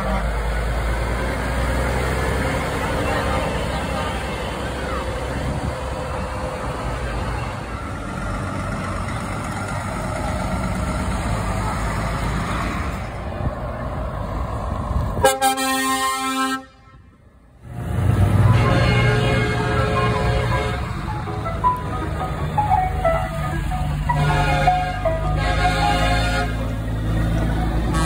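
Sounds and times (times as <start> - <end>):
truck air horn: 0.0 - 0.5, 15.2 - 17.2, 18.4 - 21.1, 24.1 - 26.9
heavy trucks driving past: 0.0 - 28.0.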